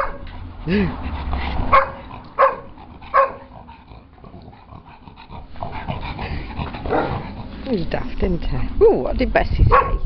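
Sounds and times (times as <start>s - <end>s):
dog barking: 0.0s - 0.2s, 1.7s - 3.5s, 6.9s - 7.2s, 9.7s - 10.0s
dog play noises: 0.0s - 8.8s.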